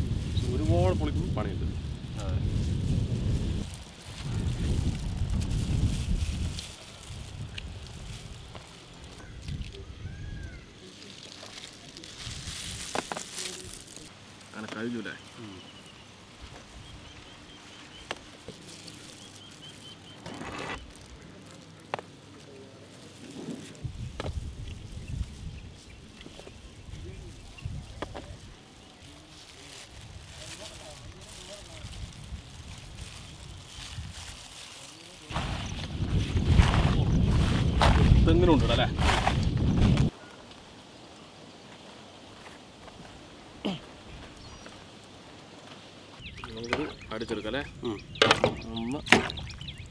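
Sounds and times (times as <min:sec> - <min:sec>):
wind on microphone: 0:00.0 - 0:10.8, 0:23.4 - 0:28.6, 0:29.9 - 0:34.5, 0:35.3 - 0:40.1
fruit rustling and clattering: 0:02.1 - 0:09.9, 0:10.8 - 0:15.8, 0:17.9 - 0:40.1
faint bird chirping: 0:14.8 - 0:21.4, 0:43.7 - 0:44.9, 0:45.7 - 0:49.9
rustling scrape: 0:18.6 - 0:21.1, 0:23.0 - 0:23.9, 0:32.6 - 0:40.1.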